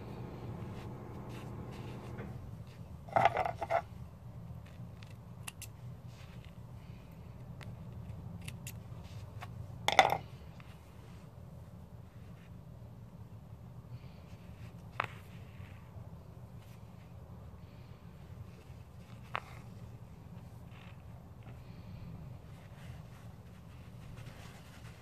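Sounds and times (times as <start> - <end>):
low hum: 0.0 - 2.7.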